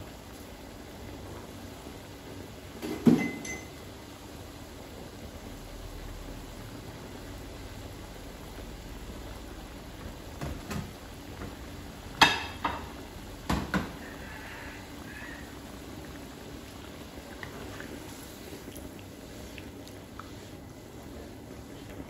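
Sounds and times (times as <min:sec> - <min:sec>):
curry bubbling in a wok: 0:00.0 - 0:22.0.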